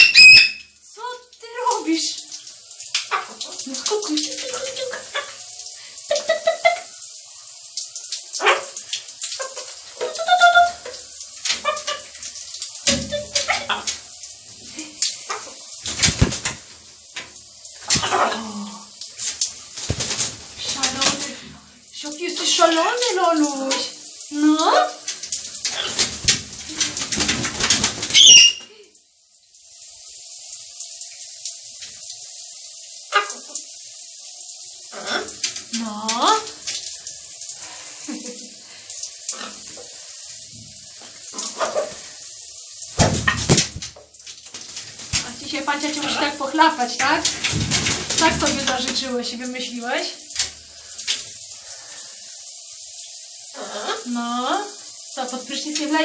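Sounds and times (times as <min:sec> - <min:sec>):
macaw calls: 0:00.0 - 0:00.6, 0:28.1 - 0:28.7
faint steady hiss: 0:00.2 - 0:56.0
macaw flapping wet wings: 0:12.8 - 0:14.0, 0:14.7 - 0:16.8, 0:17.8 - 0:21.5, 0:25.2 - 0:28.7, 0:42.9 - 0:46.3, 0:47.0 - 0:49.1
macaw short high call: 0:28.2 - 0:28.7.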